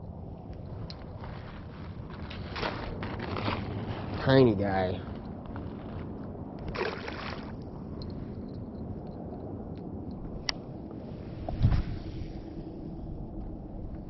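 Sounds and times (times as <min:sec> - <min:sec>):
creek water gurgling: 0:06.6 - 0:07.6
water splashing: 0:06.6 - 0:07.6.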